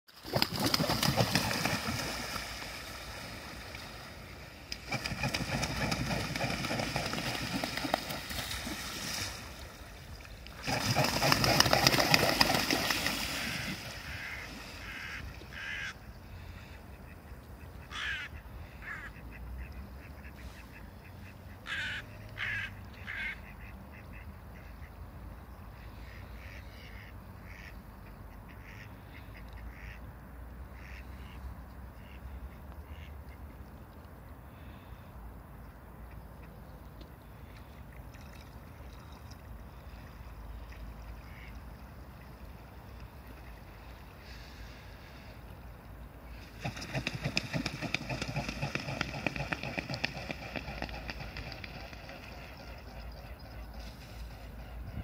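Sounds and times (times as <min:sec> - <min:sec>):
swans splashing and beating wings: 0:00.1 - 0:15.9, 0:37.5 - 0:55.0
waterbird calls: 0:09.9 - 0:25.0, 0:36.0 - 0:45.4, 0:46.2 - 0:55.0.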